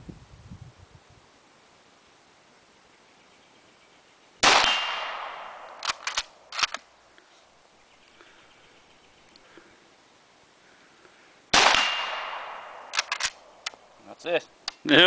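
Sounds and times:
rifle shots with echo: 4.4s - 6.8s, 11.5s - 13.5s
rifle bolt metallic clacks: 5.7s - 6.8s, 12.9s - 13.8s.

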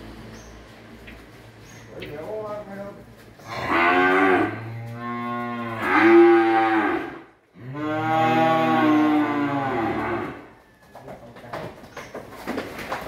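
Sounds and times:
cattle mooing: 3.4s - 10.5s.

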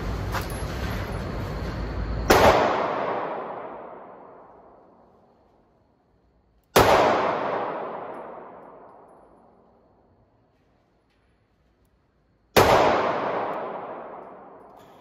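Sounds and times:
pistol shots with echo: 2.3s - 5.0s, 6.7s - 9.6s, 12.6s - 15.0s.

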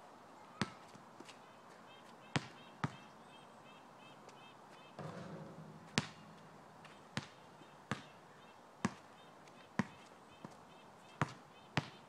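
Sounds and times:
faint chirping: 1.9s - 12.0s
basketball bouncing on asphalt: 2.2s - 3.1s, 5.0s - 12.0s
basketball clanging off rim: 5.0s - 8.2s.

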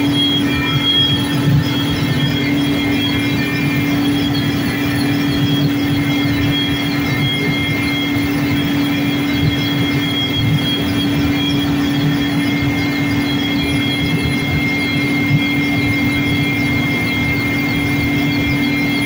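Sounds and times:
helicopter engine and rotor drone: 0.0s - 19.0s.

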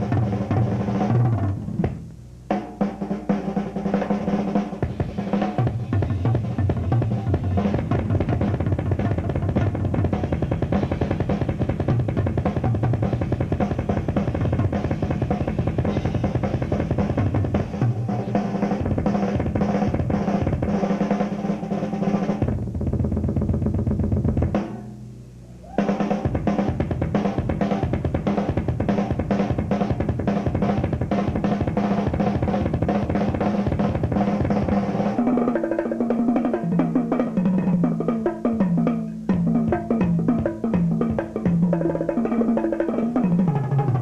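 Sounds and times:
rock drum solo: 0.0s - 44.0s.

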